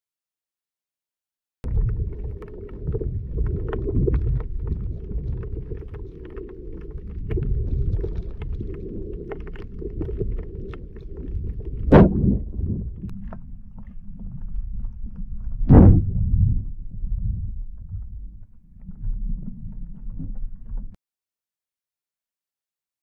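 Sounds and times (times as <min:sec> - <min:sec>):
muffled underwater rumble: 0:01.6 - 0:21.0
sharp clicks and crackles: 0:01.7 - 0:15.7.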